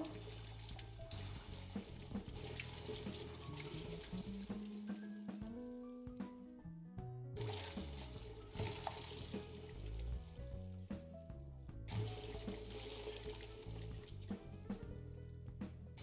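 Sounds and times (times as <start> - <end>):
tap running into sink: 0.0 - 5.5, 7.4 - 10.5, 11.9 - 15.0
background music: 0.0 - 16.0.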